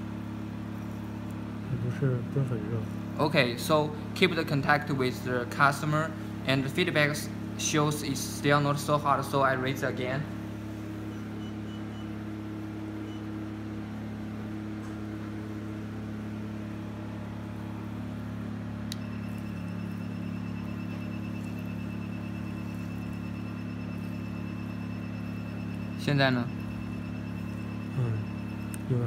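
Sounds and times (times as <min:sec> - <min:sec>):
machine humming steadily: 0:00.0 - 0:29.0
rapid high beeps: 0:11.1 - 0:12.1, 0:19.0 - 0:29.0
click: 0:18.9 - 0:19.1.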